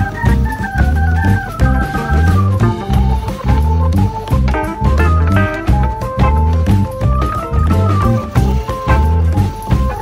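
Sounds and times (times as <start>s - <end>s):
organ-like keyboard melody: 0.0s - 10.0s
pulsing bass line: 0.0s - 10.0s.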